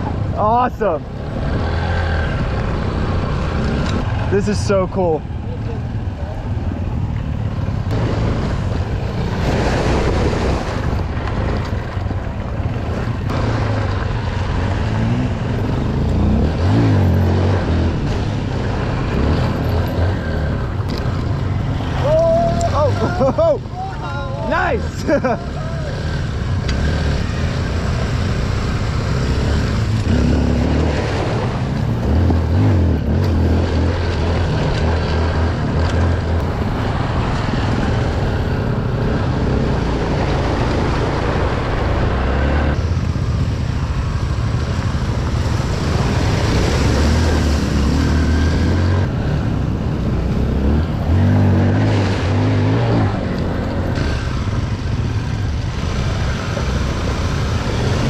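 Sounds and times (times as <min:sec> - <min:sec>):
dirt bike engine revving: 0:07.9 - 0:10.8, 0:12.8 - 0:22.1, 0:24.4 - 0:43.1, 0:45.7 - 0:58.0.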